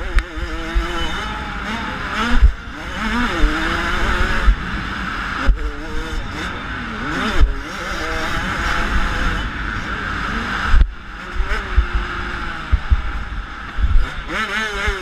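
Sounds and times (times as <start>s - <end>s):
dirt bike engine revving: 0.0s - 15.0s
wind buffeting microphone: 10.6s - 15.0s
low thumps: 10.7s - 14.1s.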